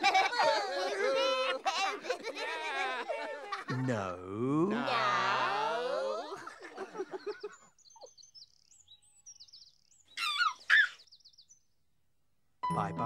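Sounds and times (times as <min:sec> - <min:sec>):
baby giggling: 0:00.0 - 0:03.9
cartoonish voice giggling: 0:00.0 - 0:07.6
birds chirping: 0:06.3 - 0:11.8.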